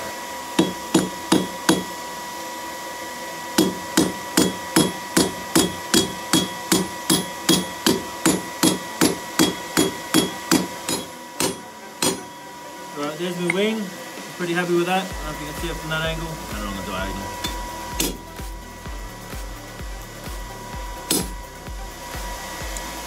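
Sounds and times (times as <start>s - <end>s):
hammer striking steel on anvil: 0.5s - 2.0s, 3.6s - 12.5s, 17.0s - 18.3s, 21.0s - 21.5s.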